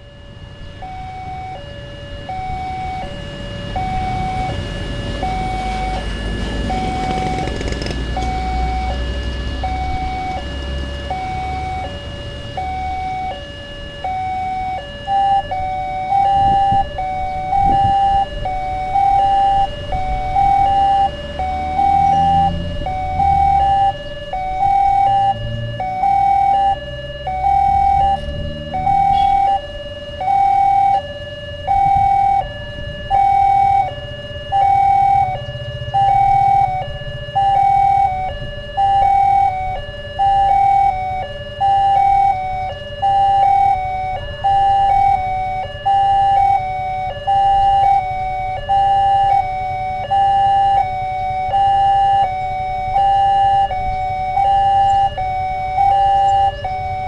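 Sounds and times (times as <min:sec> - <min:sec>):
rumble of waiting vehicles: 0:00.0 - 0:57.0
two-tone level crossing alarm: 0:00.0 - 0:57.0.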